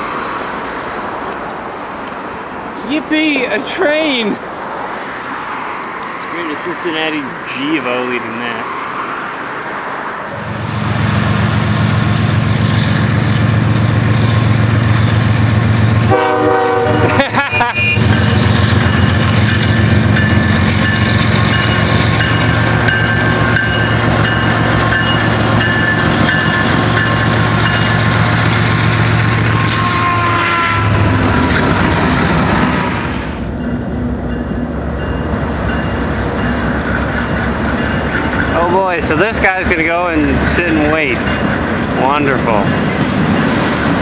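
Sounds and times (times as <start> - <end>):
diesel locomotive engines droning: 0.0 - 44.0
train horn blast: 16.0 - 18.2, 29.1 - 33.4.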